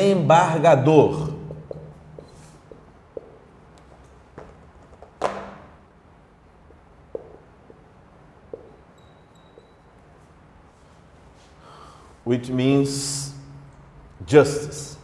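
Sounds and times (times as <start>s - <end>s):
marker writing on a whiteboard: 1.5s - 4.0s.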